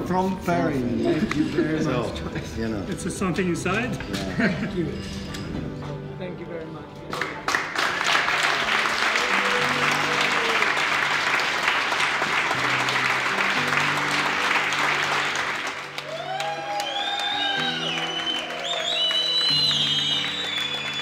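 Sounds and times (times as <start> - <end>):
background music with low notes: 0.0 - 21.0
people clapping: 7.1 - 21.0.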